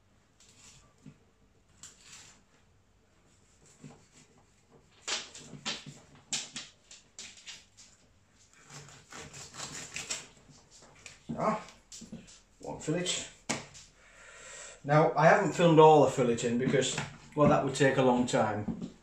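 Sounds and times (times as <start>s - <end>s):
knife scraping fish: 0.4s - 1.1s, 1.8s - 2.5s, 8.5s - 12.5s
newspaper rustling: 3.3s - 14.0s.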